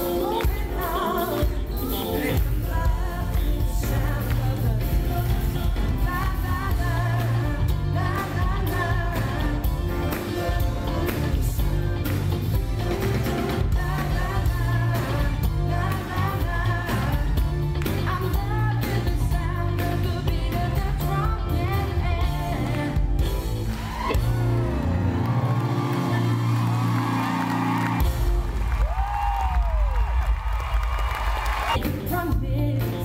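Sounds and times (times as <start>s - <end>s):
bass: 0.0s - 33.0s
drums: 0.0s - 33.0s
men singing in harmony: 1.0s - 5.6s, 6.9s - 15.4s.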